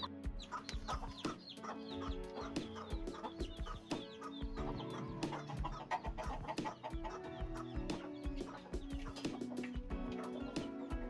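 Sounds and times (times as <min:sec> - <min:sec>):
chicks peeping: 0:00.0 - 0:11.0
hens clucking: 0:00.0 - 0:11.0
music with steady beat: 0:00.0 - 0:11.0.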